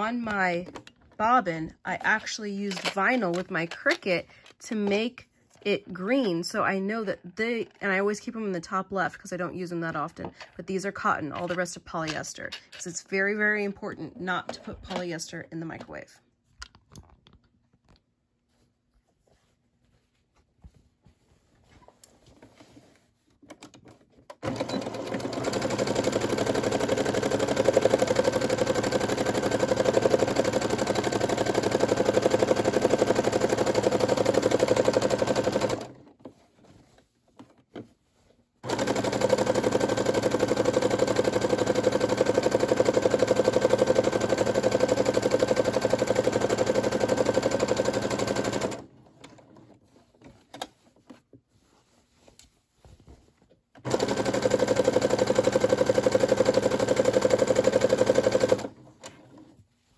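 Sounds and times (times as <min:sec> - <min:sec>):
sewing machine stitching: 0:23.5 - 0:36.1, 0:38.6 - 0:49.8, 0:53.8 - 0:59.5.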